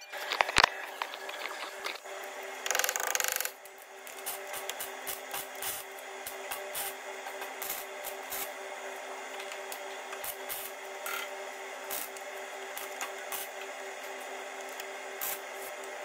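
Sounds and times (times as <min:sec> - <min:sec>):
steady low hum: 0:00.0 - 0:16.0
ratchet wrench clicking: 0:02.6 - 0:03.6.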